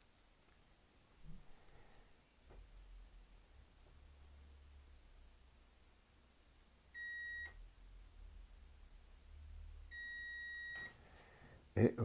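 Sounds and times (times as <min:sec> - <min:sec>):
multimeter high beep: 0:07.0 - 0:07.6, 0:09.9 - 0:11.0.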